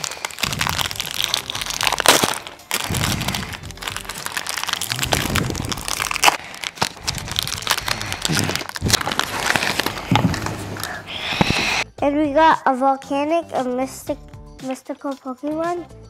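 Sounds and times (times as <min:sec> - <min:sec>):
plastic wrappers crinkling and tearing: 0:00.0 - 0:11.8.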